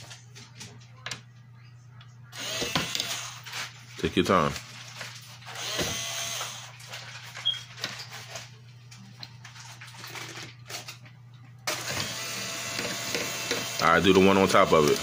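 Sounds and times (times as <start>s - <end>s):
cordless screwdriver motor running: 2.4s - 3.5s, 5.5s - 6.7s, 11.7s - 15.0s.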